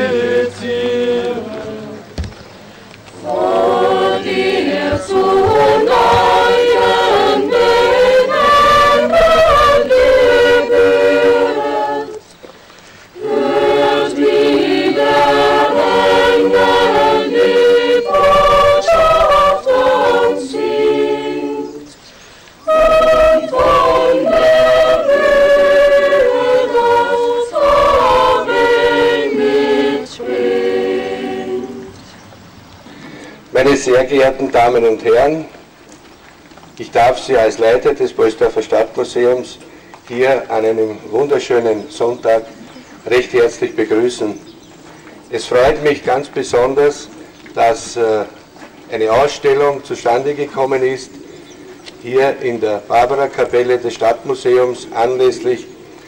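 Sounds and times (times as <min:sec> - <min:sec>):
mixed choir singing a cappella: 0:00.0 - 0:12.4, 0:13.2 - 0:32.3.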